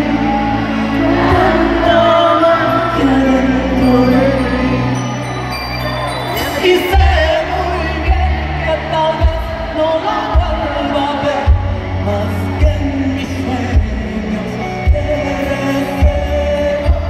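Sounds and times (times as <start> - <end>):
woman singing into microphone: 0.0 - 5.1.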